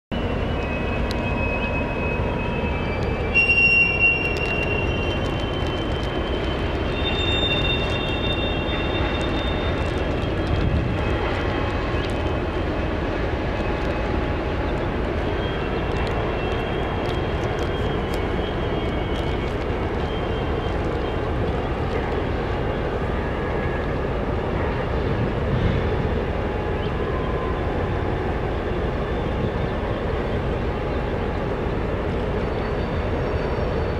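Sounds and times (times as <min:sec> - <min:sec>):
high metal squeals: 0:00.7 - 0:05.9, 0:06.8 - 0:09.9.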